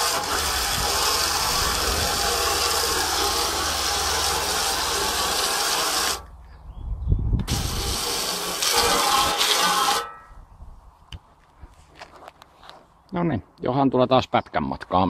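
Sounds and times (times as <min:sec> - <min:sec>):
hose water spraying into steel tub: 0:00.0 - 0:06.3, 0:07.5 - 0:10.2.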